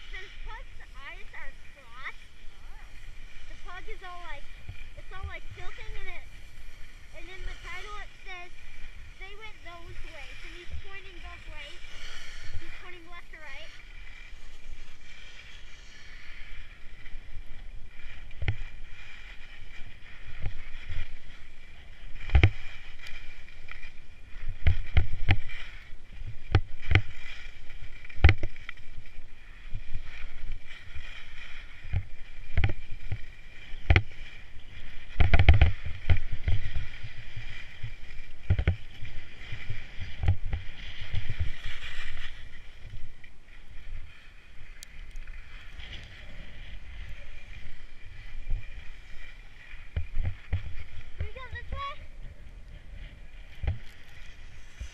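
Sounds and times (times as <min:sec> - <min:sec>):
skis scraping over snow: 0:00.0 - 0:54.9
wind on microphone: 0:00.0 - 0:54.9.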